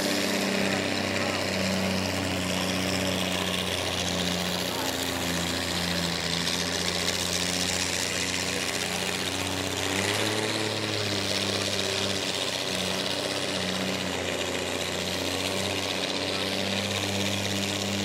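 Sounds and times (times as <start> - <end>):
tractor engines running low: 0.0 - 18.0.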